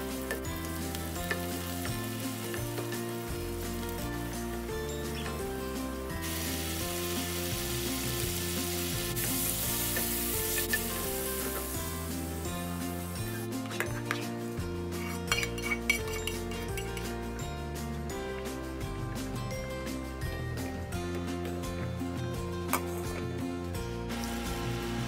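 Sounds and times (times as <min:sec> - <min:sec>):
vegetables sizzling in a frying pan: 0:00.0 - 0:04.0, 0:06.2 - 0:13.4
background music: 0:00.0 - 0:25.0.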